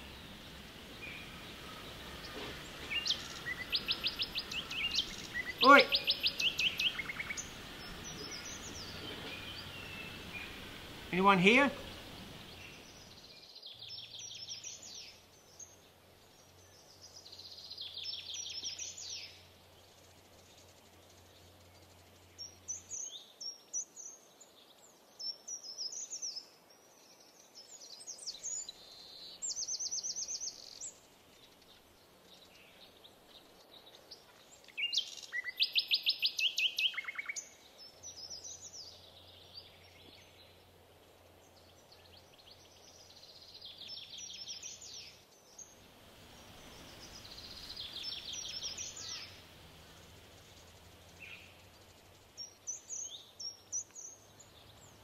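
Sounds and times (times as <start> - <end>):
birds calling and singing: 0.0 - 55.0.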